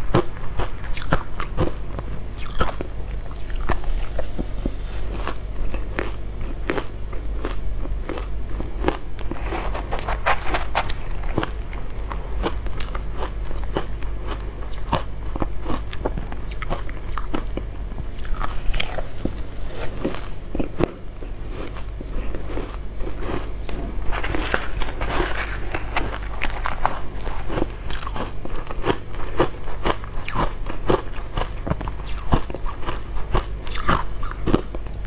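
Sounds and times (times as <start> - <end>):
crunching frozen ice: 7.5 - 17.5, 18.2 - 34.7.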